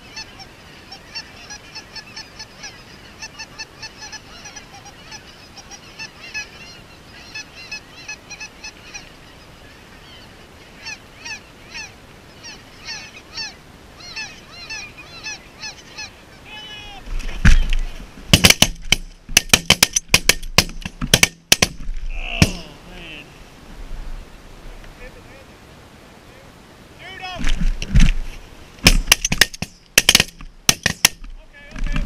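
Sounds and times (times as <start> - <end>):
geese honking: 0.0 - 18.0.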